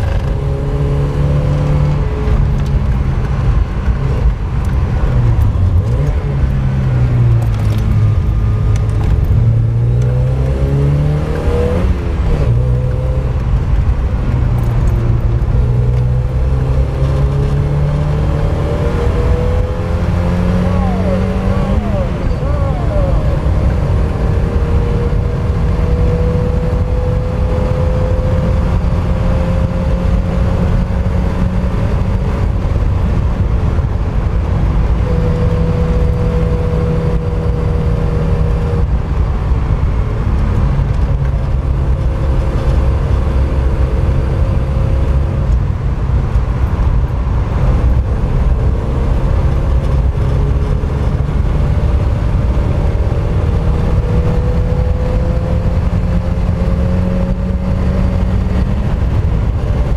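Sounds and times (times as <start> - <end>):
heavy low rumble: 0.0 - 27.1
car engine revving: 0.0 - 59.9.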